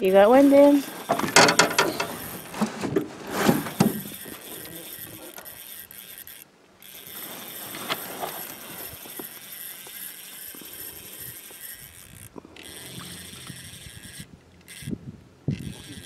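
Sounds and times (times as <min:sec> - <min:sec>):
steady outdoor hiss: 0:00.0 - 0:16.0
fishing reel clicking: 0:04.0 - 0:16.0.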